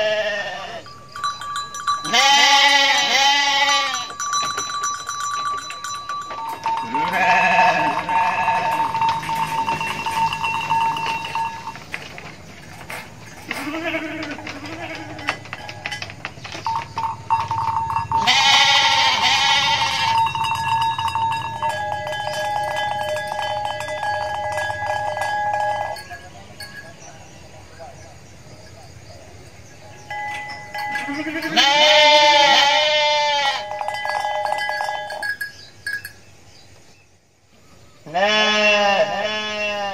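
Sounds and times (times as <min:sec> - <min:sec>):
goats bleating: 0:00.0 - 0:00.9, 0:02.0 - 0:04.2, 0:06.8 - 0:11.8, 0:13.4 - 0:15.7, 0:18.2 - 0:20.3, 0:30.8 - 0:33.8, 0:38.1 - 0:39.9.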